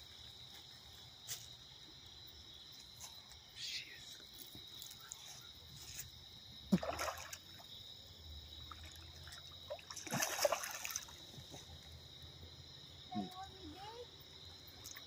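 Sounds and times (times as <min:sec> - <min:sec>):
fish splashing in water: 0:06.7 - 0:07.7, 0:08.6 - 0:11.5.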